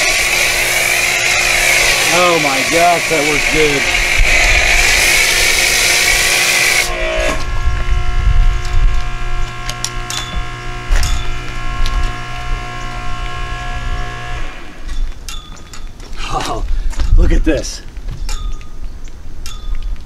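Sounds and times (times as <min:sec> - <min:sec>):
pressure washer spraying hiss: 0:00.0 - 0:07.1
pressure washer humming: 0:00.0 - 0:15.0.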